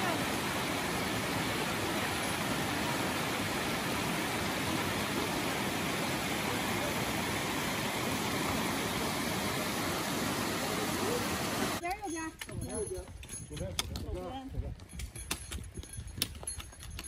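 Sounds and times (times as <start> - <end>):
stream rushing over rocks: 0.0 - 11.8.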